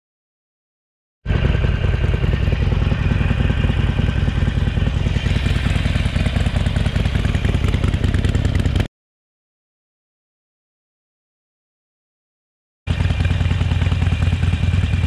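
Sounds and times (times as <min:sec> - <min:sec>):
motorcycle engine running: 0:01.3 - 0:08.9, 0:12.9 - 0:15.0.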